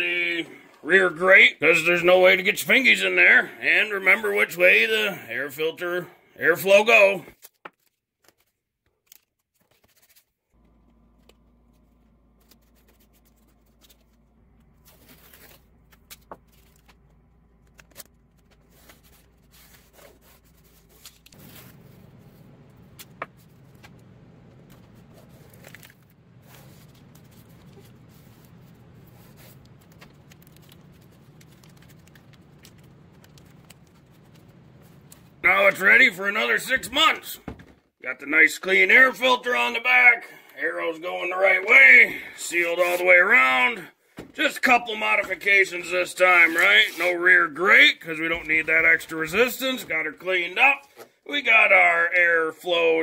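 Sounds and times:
low steady hum: 0:10.6 - 0:37.5
tape ripping and crackling: 0:12.3 - 0:22.3, 0:24.7 - 0:35.2.

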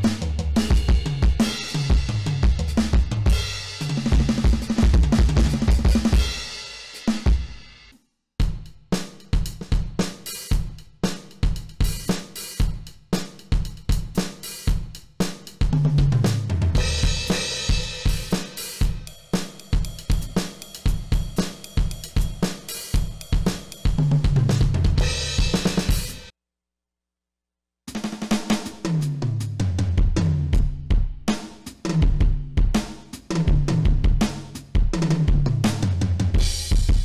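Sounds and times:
tom fill: 0:00.0 - 0:07.9
electronic drum groove: 0:00.0 - 0:26.3, 0:27.9 - 0:37.0.

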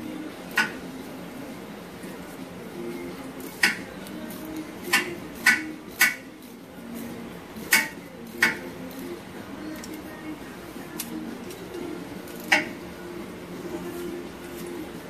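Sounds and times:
ratchet wrench clicking: 0:07.7 - 0:09.1, 0:12.3 - 0:12.8.

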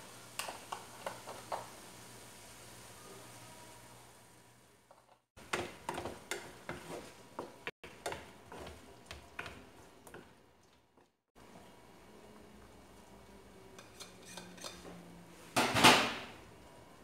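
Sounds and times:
spatula scraping frying pan: 0:13.8 - 0:14.9.

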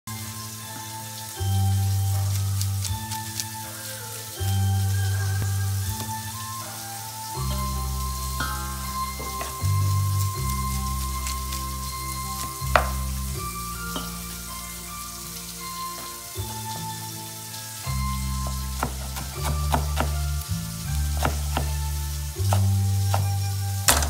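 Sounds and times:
background music with bass: 0:00.0 - 0:24.0
leaves rustling: 0:00.1 - 0:24.0
knife chopping on wooden board: 0:12.8 - 0:13.0, 0:18.8 - 0:20.1, 0:21.2 - 0:21.8, 0:22.4 - 0:24.0.

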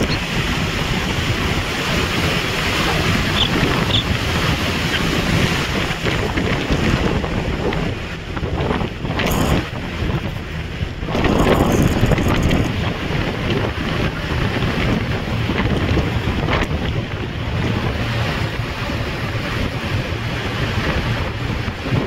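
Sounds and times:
road noise: 0:00.0 - 0:22.0
wind buffeting microphone: 0:00.0 - 0:22.0.

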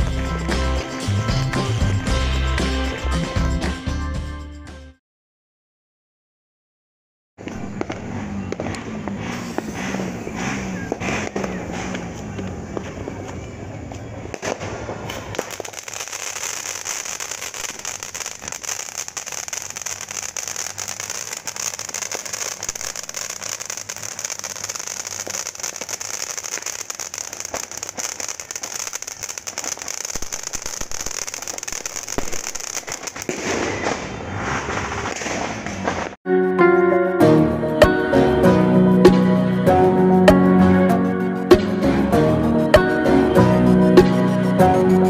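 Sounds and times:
fountain firework hissing and crackling: 0:07.4 - 0:35.7.

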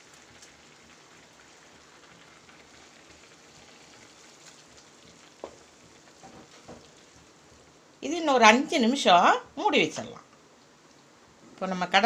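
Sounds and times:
curry simmering in a pan: 0:00.0 - 0:11.7
soft tap: 0:05.4 - 0:05.6.

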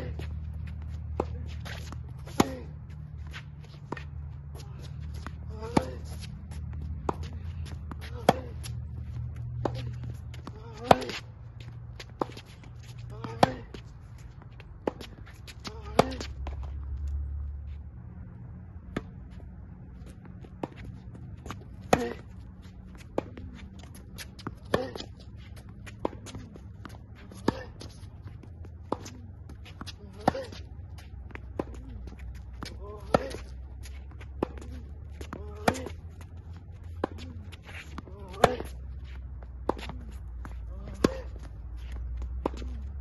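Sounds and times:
tennis ball bouncing on hard court: 0:00.0 - 0:17.0, 0:18.8 - 0:43.0
sneakers squeaking on court: 0:00.0 - 0:17.3
tennis ball struck by racket: 0:01.1 - 0:02.7, 0:05.1 - 0:11.3, 0:13.2 - 0:13.9, 0:14.7 - 0:16.6, 0:20.2 - 0:22.4, 0:23.0 - 0:28.0, 0:28.8 - 0:30.6, 0:32.5 - 0:38.8, 0:39.6 - 0:43.0.

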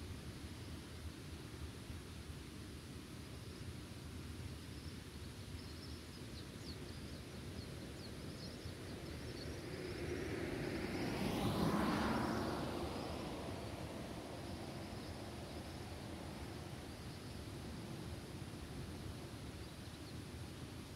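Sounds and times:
wind rumble: 0:08.9 - 0:19.6
vehicle passing: 0:09.6 - 0:17.1.

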